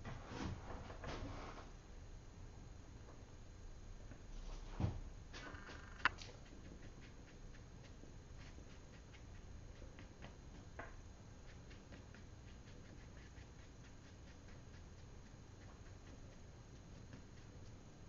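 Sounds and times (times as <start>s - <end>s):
brush dabbing paint on paper: 6.3s - 10.8s, 11.4s - 18.0s.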